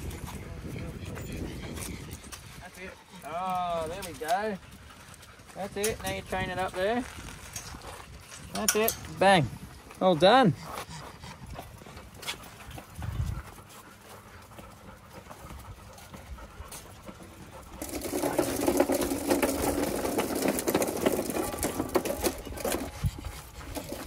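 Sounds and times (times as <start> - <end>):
plastic toy tractor rattling on bricks: 17.6 - 24.0.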